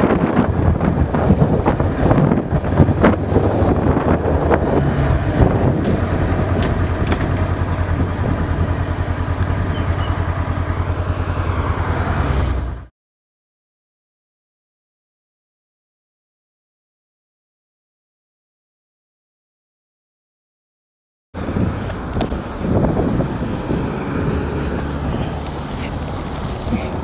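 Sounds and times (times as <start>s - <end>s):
road noise: 0.0s - 12.9s, 21.4s - 27.0s
car engine drone from inside cabin: 0.1s - 12.9s, 21.4s - 27.0s.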